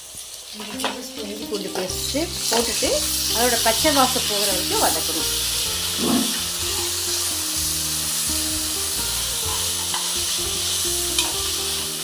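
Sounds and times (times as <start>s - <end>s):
onions sizzling in hot oil: 0.0s - 12.0s
metal spatula scraping pan: 5.9s - 7.0s, 9.5s - 10.2s.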